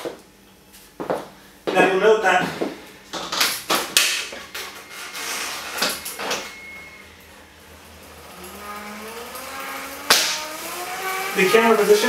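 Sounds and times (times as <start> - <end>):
flywheel whine rising in pitch: 4.5 - 12.0.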